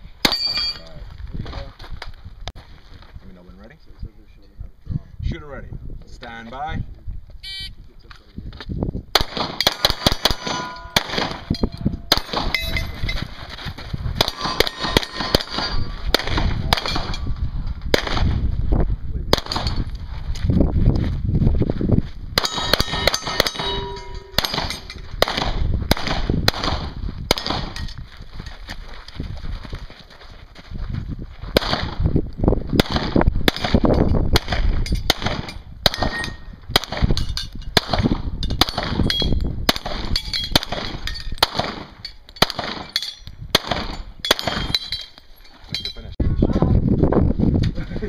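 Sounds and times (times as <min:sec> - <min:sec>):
pistol shots: 0:09.1 - 0:12.7, 0:14.2 - 0:17.2, 0:17.9 - 0:18.4, 0:19.3 - 0:19.8, 0:22.4 - 0:27.8, 0:31.6 - 0:32.0, 0:32.8 - 0:37.2, 0:39.7 - 0:44.8
steel plates clanging: 0:09.7 - 0:13.2, 0:14.3 - 0:16.0, 0:22.4 - 0:25.1.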